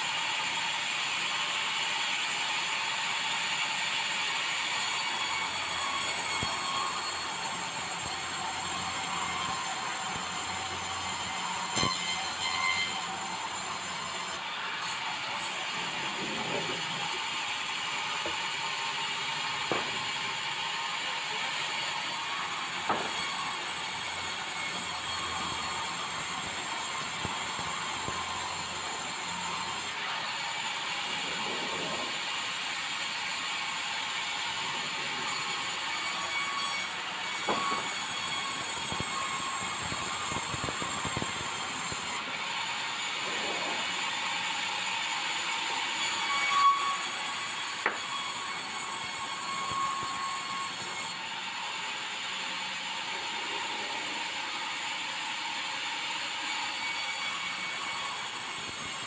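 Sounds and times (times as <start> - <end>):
band saw sawing wood: 4.6 - 51.2
sharp knocks of wood and metal: 11.7 - 12.9, 19.6 - 20.1, 22.8 - 23.4, 37.4 - 38.1.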